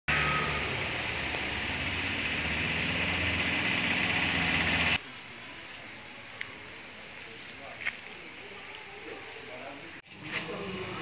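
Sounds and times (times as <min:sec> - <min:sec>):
engine-like hum: 0:00.1 - 0:05.0
faint background noise: 0:05.0 - 0:11.0.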